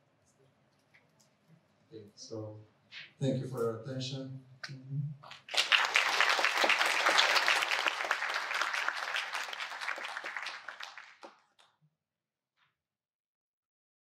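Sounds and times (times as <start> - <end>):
audience applauding: 5.3 - 11.6.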